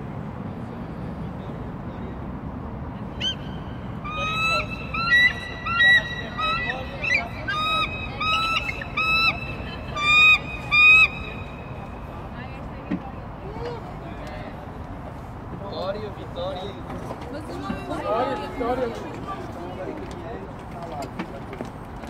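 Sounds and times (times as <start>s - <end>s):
eagle high piping calls: 3.2s - 12.2s.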